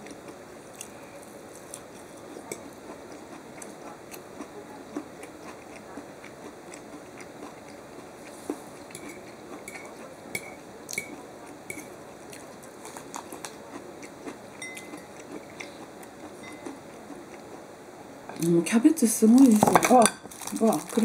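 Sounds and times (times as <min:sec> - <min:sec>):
metal fork clinking on ceramic plate: 0:14.6 - 0:15.1.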